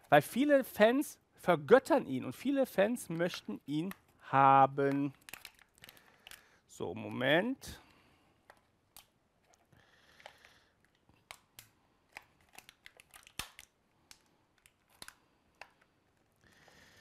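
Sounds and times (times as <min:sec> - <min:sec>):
plastic rustling: 0:03.0 - 0:06.6, 0:09.4 - 0:16.3.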